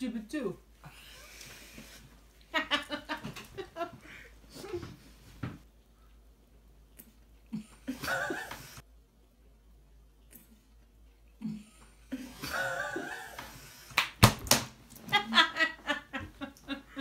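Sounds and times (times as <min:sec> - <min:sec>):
women laughing: 0:02.5 - 0:04.7, 0:15.0 - 0:17.0.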